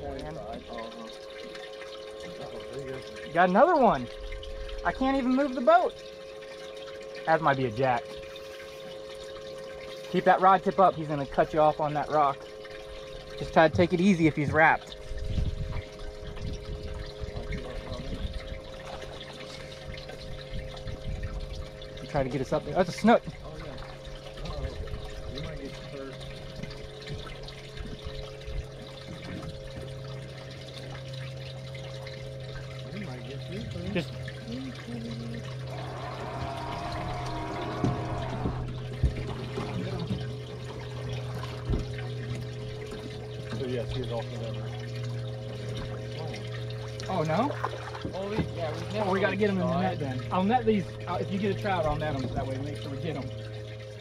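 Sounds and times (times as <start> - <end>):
steady electric hum: 0.0 - 54.0
water lapping against boat hull: 0.0 - 54.0
wavering whine: 0.0 - 54.0
wind buffeting microphone: 15.0 - 18.7.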